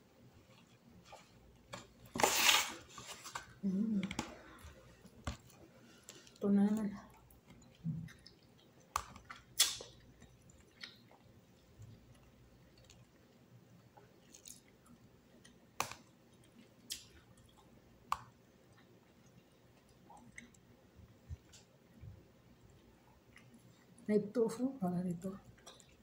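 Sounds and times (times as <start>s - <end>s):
person chewing: 7.0s - 24.0s, 25.4s - 26.0s.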